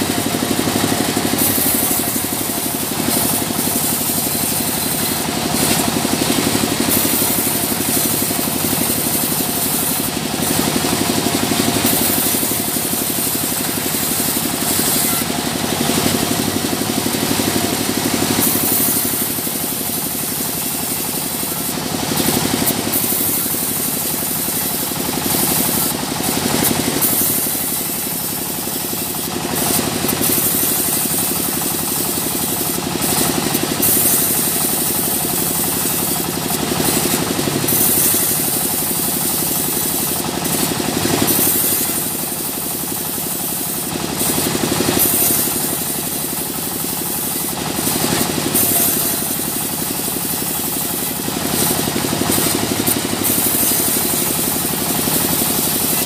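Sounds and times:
saw cutting wood: 0:00.0 - 0:56.0
sawmill machinery running: 0:00.0 - 0:56.0.

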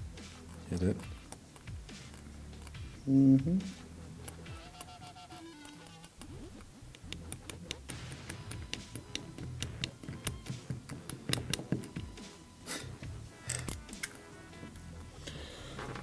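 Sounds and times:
metal tool clicking: 0:06.9 - 0:12.0, 0:13.4 - 0:14.2.

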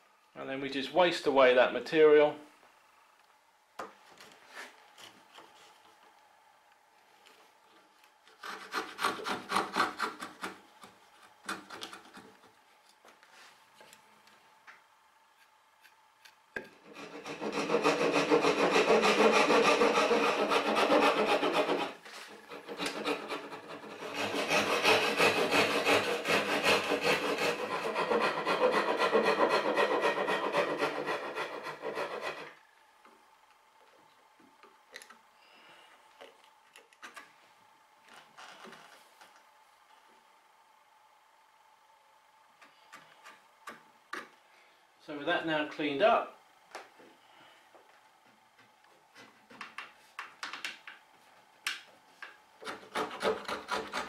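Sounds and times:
hand saw cutting wood: 0:08.3 - 0:12.3, 0:16.6 - 0:32.6, 0:52.6 - 0:54.0.

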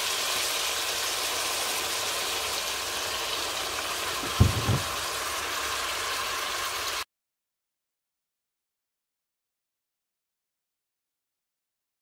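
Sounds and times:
meat sizzling in fat: 0:00.0 - 0:07.0
short low thump: 0:04.2 - 0:05.0.

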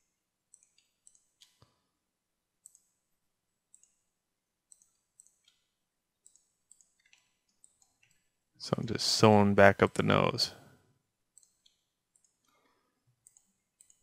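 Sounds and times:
computer mouse clicks: 0:00.0 - 0:01.8, 0:02.6 - 0:03.0, 0:03.7 - 0:08.3, 0:11.3 - 0:14.0.

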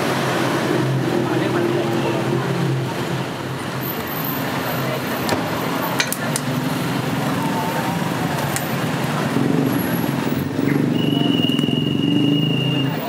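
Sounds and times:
street traffic engine hum: 0:00.0 - 0:13.0.

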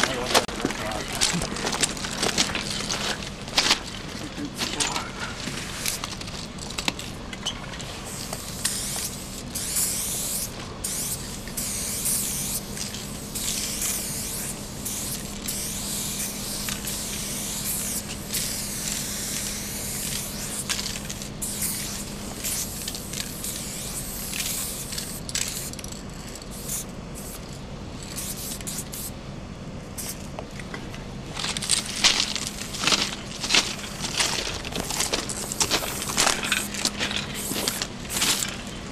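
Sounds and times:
spray paint can hissing: 0:05.6 - 0:06.9, 0:08.0 - 0:29.1, 0:30.0 - 0:30.3, 0:35.4 - 0:38.5.

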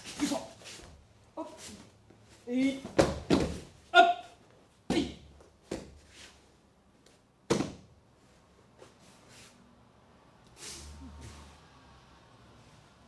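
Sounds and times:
bodies thudding on mat: 0:02.8 - 0:03.8.

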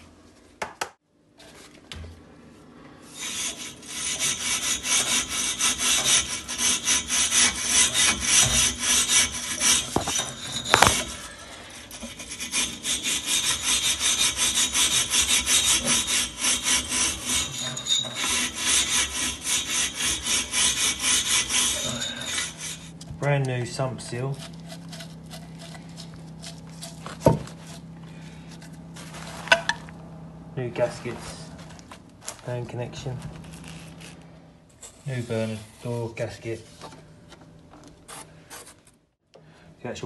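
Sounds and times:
brush scrubbing metal fins: 0:03.2 - 0:29.7.

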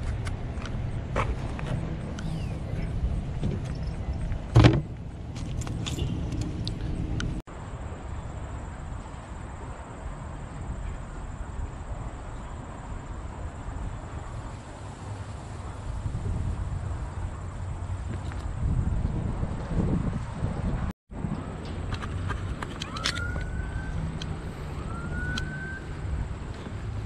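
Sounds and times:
steady wind: 0:00.0 - 0:27.0
car trunk lid thump: 0:04.5 - 0:04.9.

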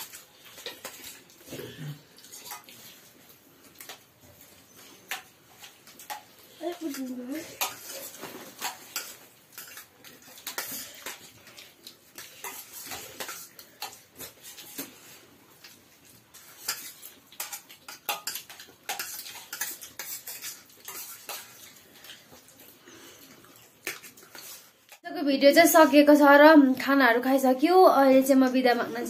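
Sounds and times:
dishes and utensils clinking: 0:16.4 - 0:21.7.

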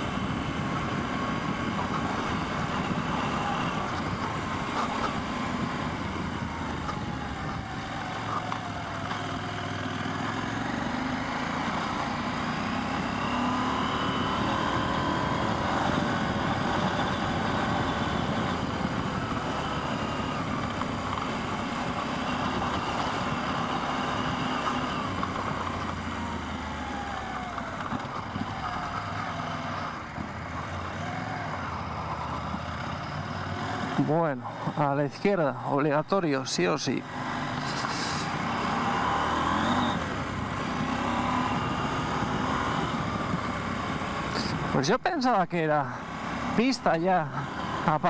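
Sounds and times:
motorcycle engine running: 0:00.0 - 0:34.8.

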